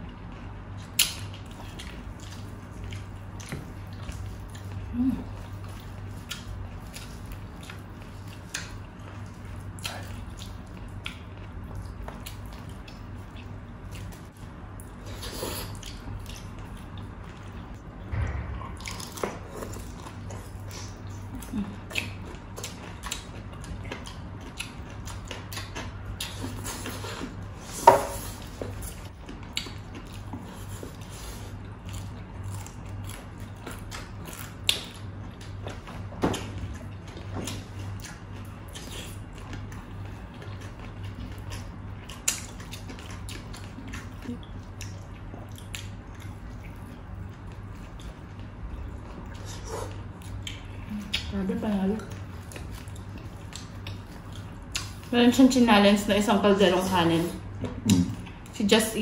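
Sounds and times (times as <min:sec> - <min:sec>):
low steady hum: 0:00.0 - 0:59.0
wet chewing smacks: 0:31.9 - 0:51.3, 0:52.0 - 0:55.1.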